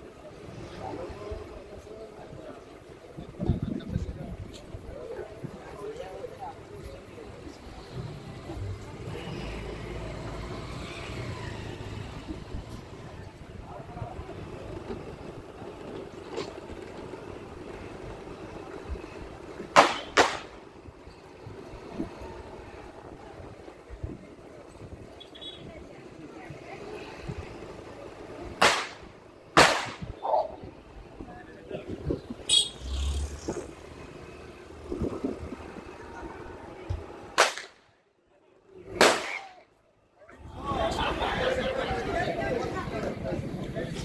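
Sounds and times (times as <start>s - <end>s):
faint voices: 0.0s - 19.8s, 20.5s - 37.4s, 38.1s - 44.0s
low street noise: 0.0s - 44.0s
slowly moving vehicle rumble: 0.0s - 44.0s
loud sharp bangs: 19.7s - 20.6s, 28.6s - 30.2s, 37.3s - 37.9s, 39.0s - 39.6s
firecracker crack: 19.7s - 20.7s, 28.6s - 30.2s, 37.3s - 37.9s, 38.9s - 39.7s.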